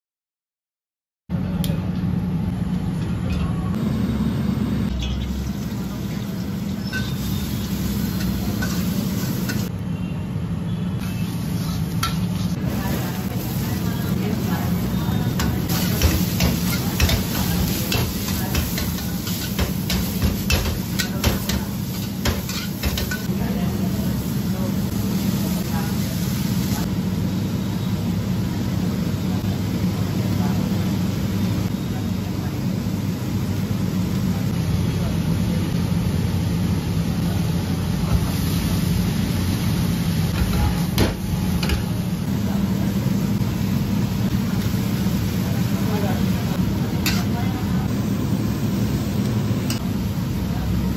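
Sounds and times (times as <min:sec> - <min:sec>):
steady low hum: 0:01.3 - 0:21.1
food sizzling: 0:03.8 - 0:09.7, 0:11.0 - 0:26.9
metal spatula scraping a wok: 0:11.0 - 0:12.6, 0:21.8 - 0:23.3.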